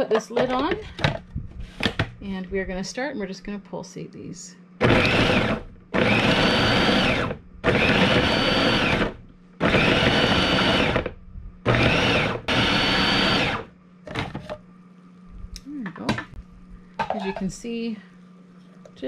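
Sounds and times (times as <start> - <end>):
food processor motor whine: 4.8 - 14.4.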